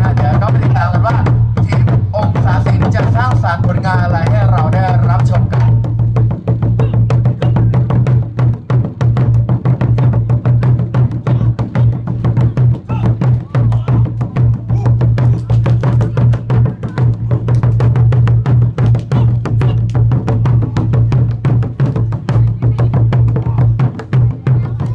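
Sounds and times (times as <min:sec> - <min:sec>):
barrel drums beaten rapidly: 0:00.0 - 0:24.9.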